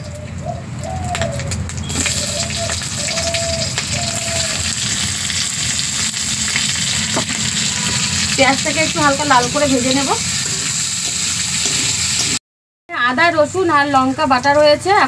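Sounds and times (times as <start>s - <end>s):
onions sizzling in hot oil: 0.8s - 12.4s.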